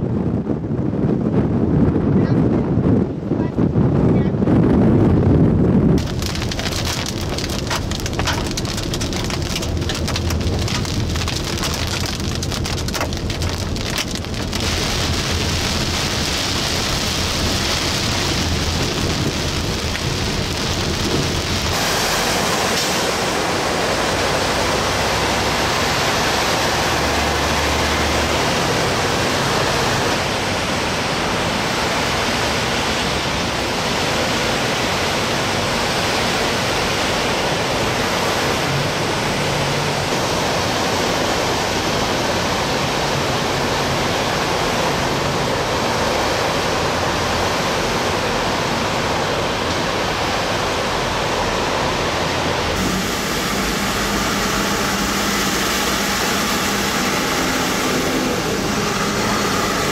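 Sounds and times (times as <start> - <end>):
heavy rain pouring: 5.9 - 59.9
rain and hail on a vehicle: 6.0 - 59.9.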